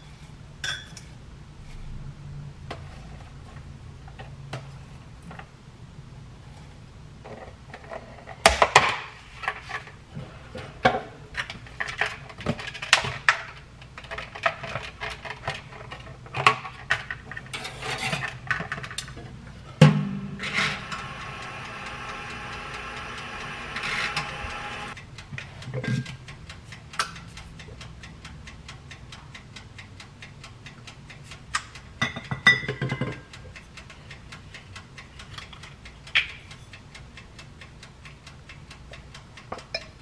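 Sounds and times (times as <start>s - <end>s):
kitchenware clicking and clattering: 0.0s - 1.2s, 7.3s - 21.0s, 32.0s - 33.3s
toaster oven door shutting: 19.8s - 24.9s.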